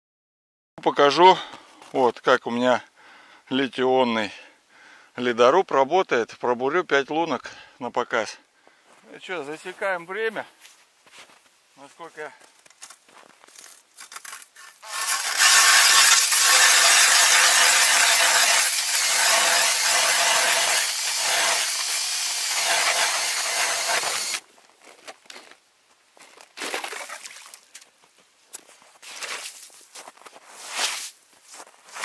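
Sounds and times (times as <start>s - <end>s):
ice auger grinding through ice: 14.2s - 24.4s
drill motor whine: 14.8s - 24.4s.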